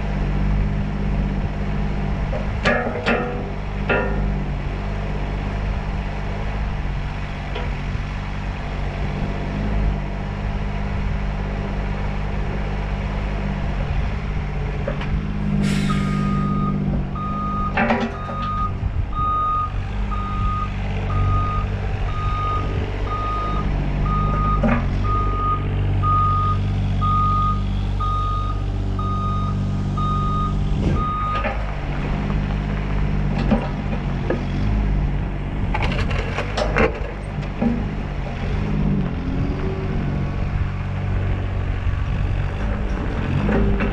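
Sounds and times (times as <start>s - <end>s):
diesel engine running: 0.0s - 43.9s
machinery clunks: 2.3s - 4.4s, 14.8s - 26.5s, 30.0s - 34.6s
hiss of air: 15.6s - 16.3s
reversing alarm beeping: 15.9s - 31.5s.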